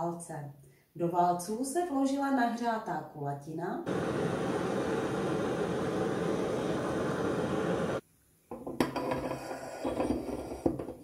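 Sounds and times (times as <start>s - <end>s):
butane torch flame hissing: 3.9s - 8.0s, 9.3s - 10.8s.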